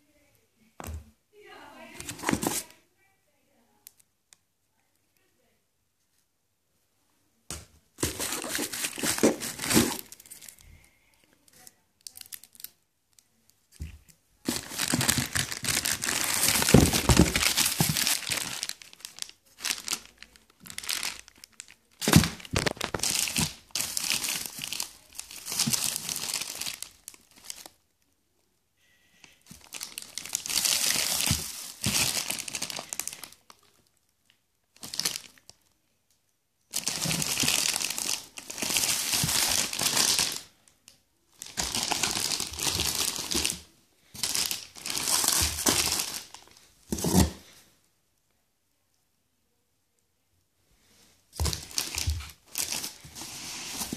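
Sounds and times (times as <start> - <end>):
plastic wrapping crinkling: 2.0 - 2.7, 8.0 - 10.7, 13.8 - 27.8, 29.4 - 34.0, 34.8 - 35.6, 36.7 - 40.6, 41.3 - 47.5, 51.3 - 53.9.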